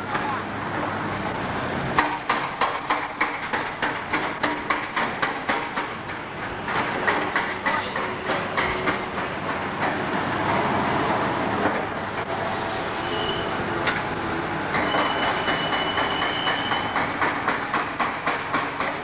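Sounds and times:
trolleybuses and cars passing: 0:00.0 - 0:19.0
thin high squeal: 0:13.0 - 0:13.5, 0:14.8 - 0:17.0.

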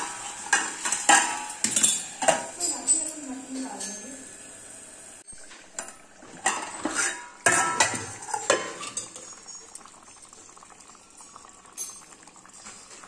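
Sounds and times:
soft cookware clatter: 0:00.0 - 0:04.2, 0:05.2 - 0:13.0
steel lid clinking on pot: 0:00.0 - 0:04.2, 0:05.8 - 0:10.4.

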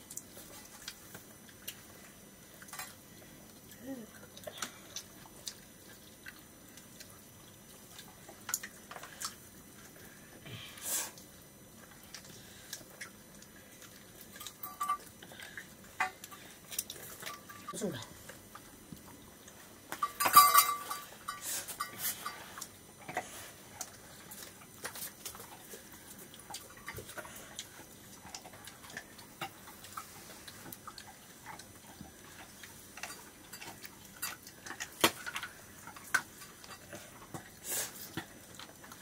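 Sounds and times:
dishes clattering: 0:14.4 - 0:15.1, 0:20.0 - 0:22.4.

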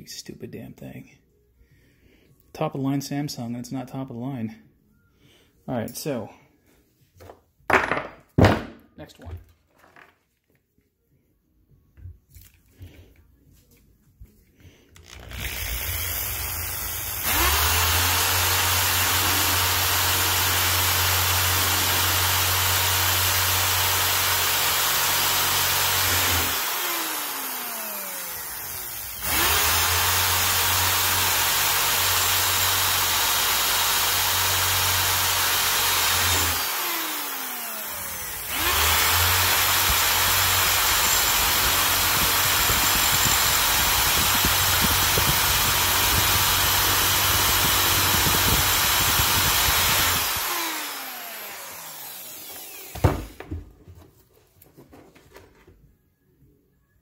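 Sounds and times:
electric drill drilling metal: 0:15.0 - 0:53.5.

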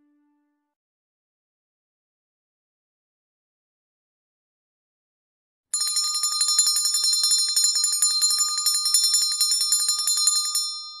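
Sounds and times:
bell rung rapidly: 0:05.8 - 0:11.0.

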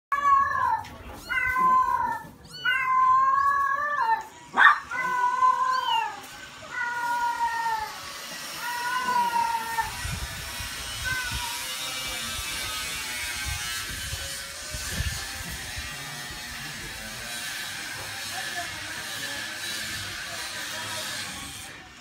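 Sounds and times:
kittens mewing: 0:00.1 - 0:10.2, 0:10.9 - 0:11.9.

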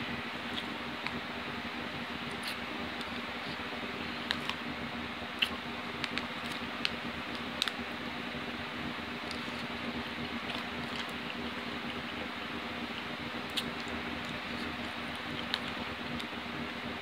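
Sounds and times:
chewing: 0:05.4 - 0:07.8, 0:09.2 - 0:16.3.

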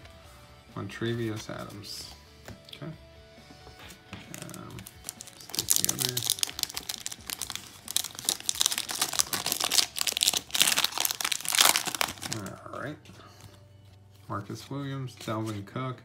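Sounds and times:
plastic foil wrapper crinkling: 0:04.3 - 0:12.6.

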